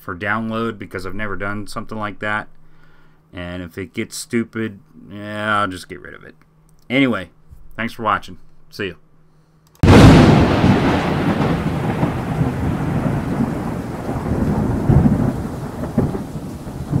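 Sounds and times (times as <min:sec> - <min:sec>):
steady rain: 0:09.8 - 0:17.0
thunder rumbling: 0:09.8 - 0:17.0.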